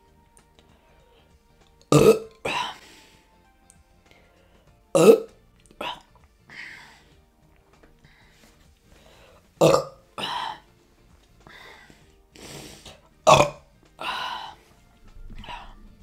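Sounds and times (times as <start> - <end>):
woman burping: 1.9 - 2.8, 4.9 - 6.1, 9.6 - 10.6, 13.3 - 13.6.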